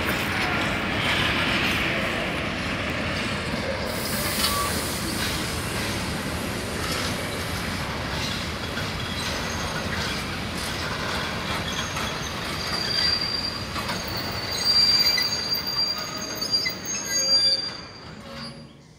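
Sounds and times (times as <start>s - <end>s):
freight train rumbling on rails: 0.0s - 18.9s
high-pitched wheel squeal: 11.6s - 18.8s.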